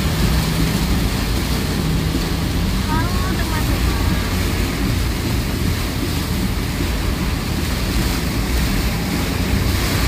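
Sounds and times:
heavy rain on a car: 0.0s - 10.0s
tyres hissing on wet road: 0.0s - 10.0s.

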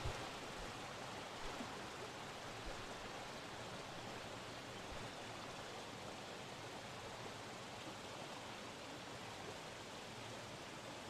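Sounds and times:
stream rushing over rocks: 0.0s - 11.0s.

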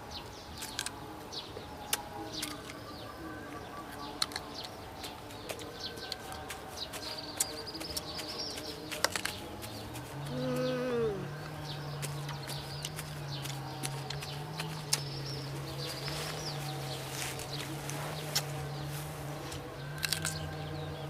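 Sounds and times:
birds chirping: 0.0s - 21.0s
crunchy biting and chewing: 4.0s - 16.6s, 19.5s - 20.6s.

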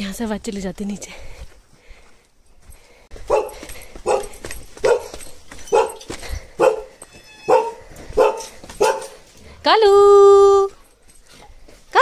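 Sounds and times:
dog barking: 3.2s - 9.2s.

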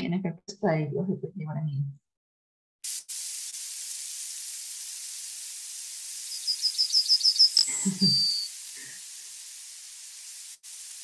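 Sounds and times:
steady hiss: 2.8s - 11.0s
recorded bird song: 6.3s - 8.5s.

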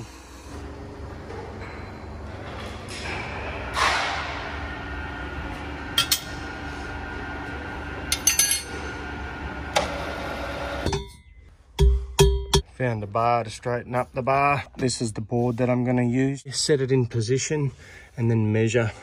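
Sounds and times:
workshop machinery hum: 0.0s - 12.7s.

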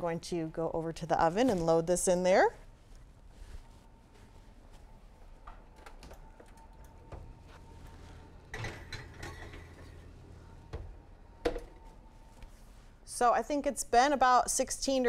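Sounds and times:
oven door shutting: 8.4s - 11.8s.

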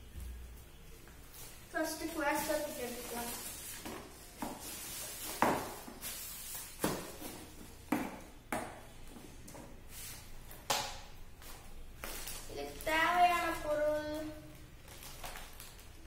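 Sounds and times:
plastic packaging crinkling: 1.3s - 7.1s, 11.4s - 16.0s.

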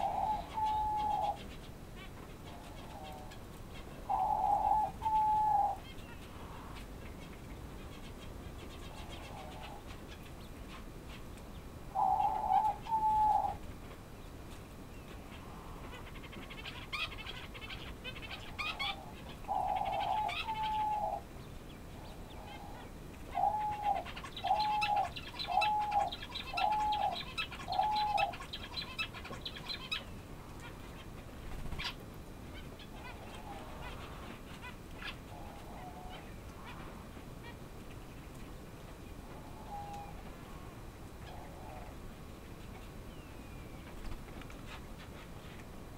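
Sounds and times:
quail calling: 0.0s - 6.9s, 11.9s - 13.6s, 15.3s - 21.2s, 22.3s - 31.1s.

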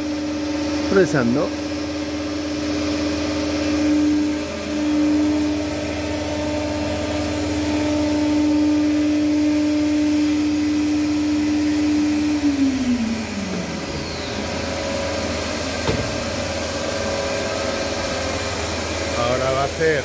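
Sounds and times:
router spindle whine: 0.0s - 20.0s
dust extraction rush: 10.3s - 20.0s.

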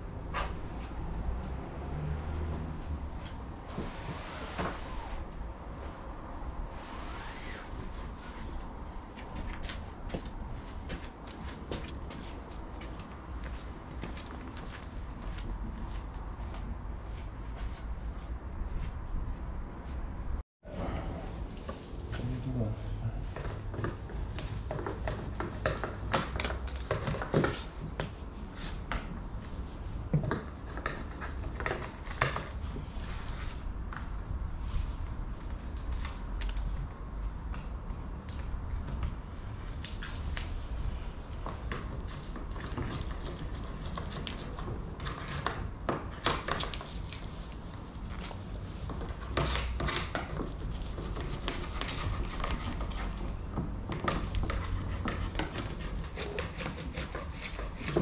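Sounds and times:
tape scraping and tearing: 6.7s - 7.8s.

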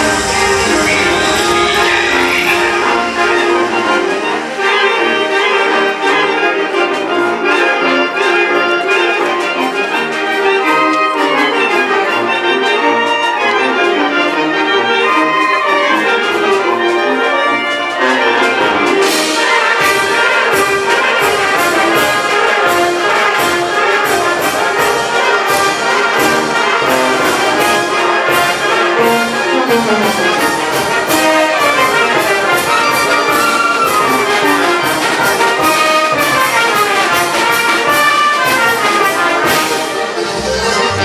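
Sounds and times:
cymbals and drums: 0.0s - 7.4s, 17.8s - 41.0s
brass band playing dance tune: 0.0s - 41.0s.

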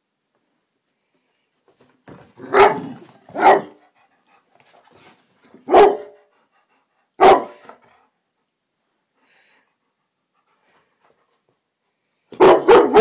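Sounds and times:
dog barking: 2.4s - 3.8s, 5.6s - 6.3s, 7.2s - 7.8s, 12.3s - 13.0s.

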